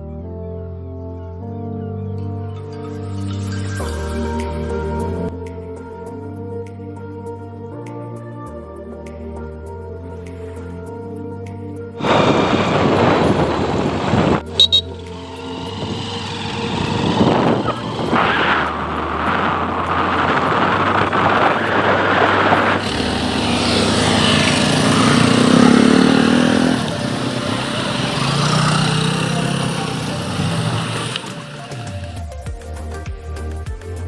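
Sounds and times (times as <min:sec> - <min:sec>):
motorcycles and scooters running: 0:12.0 - 0:32.5.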